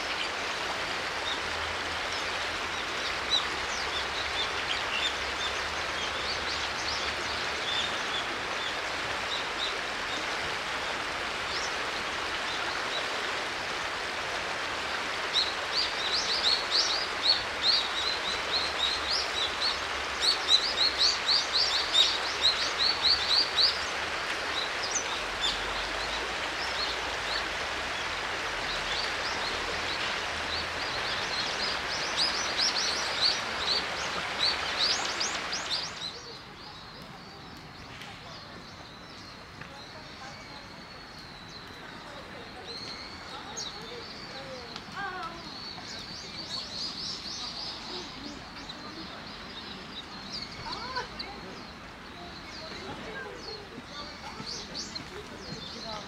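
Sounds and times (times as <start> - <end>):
river rushing over stones: 0.0 - 36.6
small birds chirping: 15.2 - 56.0.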